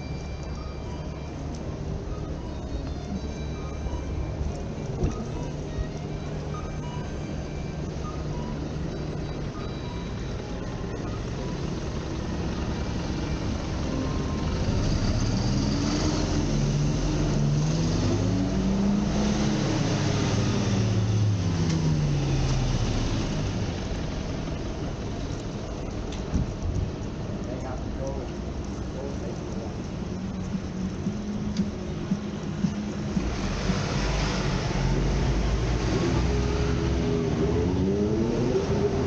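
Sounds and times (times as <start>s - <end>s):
traffic noise: 0.0s - 39.0s
vehicle engine passing: 11.4s - 25.0s, 28.6s - 39.0s.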